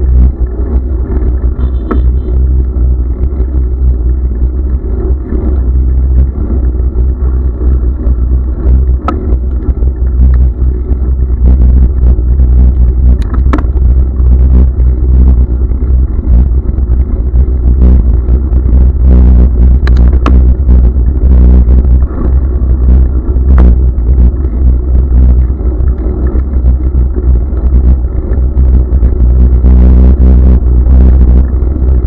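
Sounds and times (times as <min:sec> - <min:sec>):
wind and road vibration rumble: 0:00.0 - 0:32.0.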